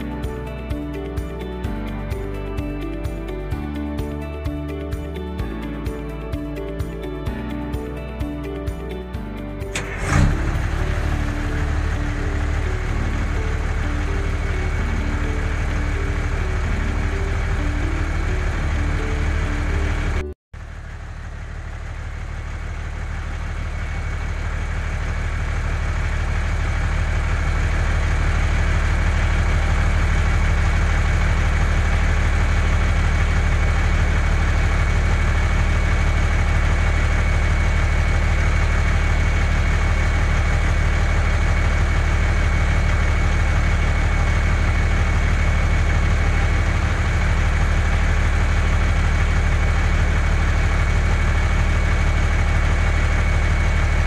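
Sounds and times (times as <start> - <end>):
truck engine hum with whine: 0.0 - 54.0.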